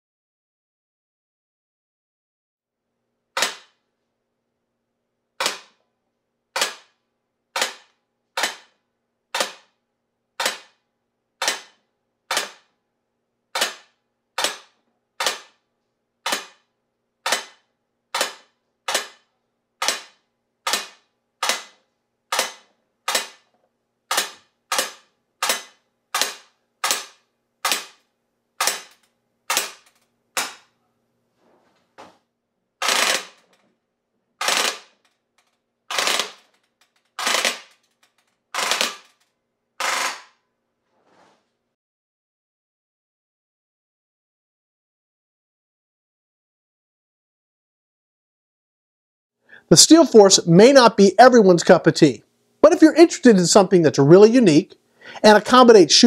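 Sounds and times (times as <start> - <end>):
bb rifle shots: 7.6 - 9.7, 16.2 - 16.6, 17.2 - 23.5, 24.1 - 28.0, 28.6 - 30.7, 32.8 - 33.5, 35.9 - 36.5, 38.6 - 39.1.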